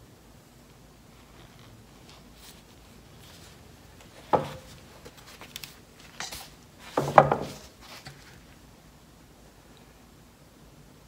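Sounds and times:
canvas frame knocking: 4.1s - 5.1s, 6.8s - 7.8s.

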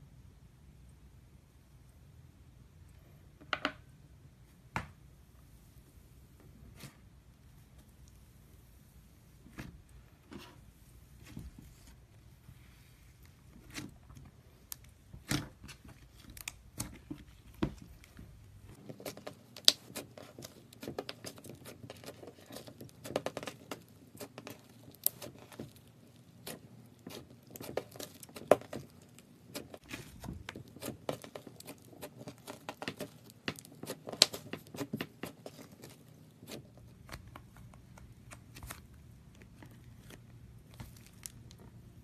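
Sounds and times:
slime squishing: 6.7s - 42.0s
slime crackling and popping: 18.9s - 41.6s.

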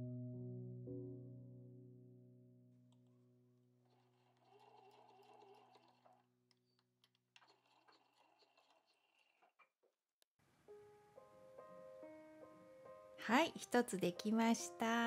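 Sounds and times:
soft piano music: 0.0s - 3.6s, 10.6s - 15.0s
sewing machine stitching: 3.9s - 6.2s, 7.4s - 9.5s.

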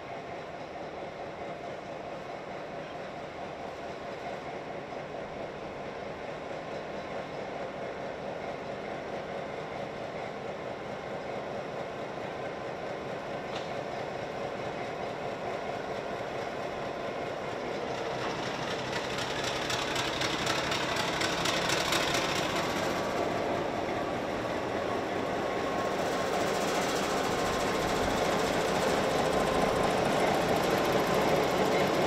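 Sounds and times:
diesel locomotive engine: 0.0s - 32.0s
rapid train clatter: 0.0s - 32.0s.

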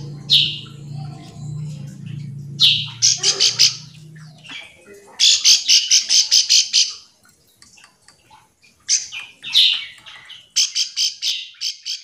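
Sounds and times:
bird high sharp chirps: 2.6s - 7.1s.

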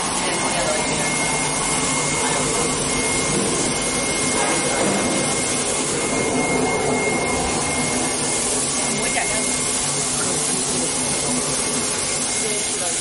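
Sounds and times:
high machine whine: 0.0s - 13.0s
machine drone: 0.0s - 13.0s.

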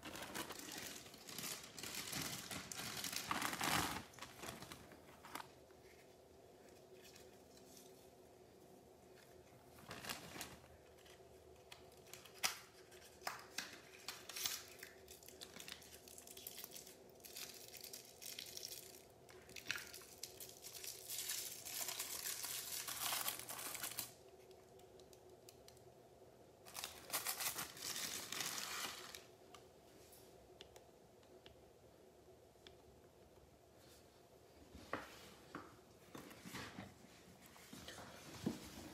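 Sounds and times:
paper packaging crinkling: 0.0s - 6.0s, 9.6s - 24.3s, 26.6s - 29.3s.

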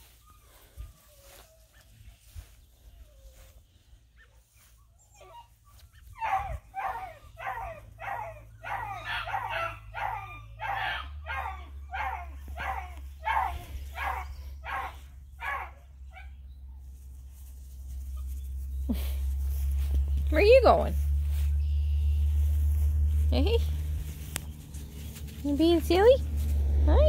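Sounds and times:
dog barking: 6.2s - 16.4s.

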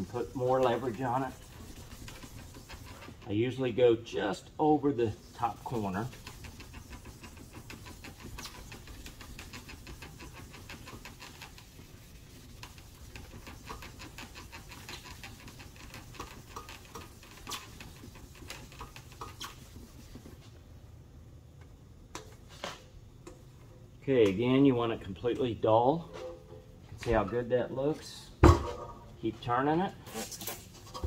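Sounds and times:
sandpaper scratching on wet paint: 0.0s - 3.5s, 5.1s - 20.4s.

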